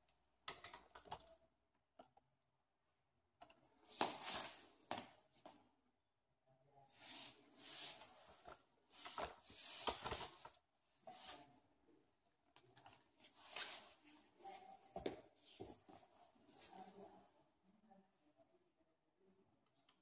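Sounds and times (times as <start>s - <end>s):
rustling handling noise: 6.9s - 11.5s, 12.8s - 16.9s.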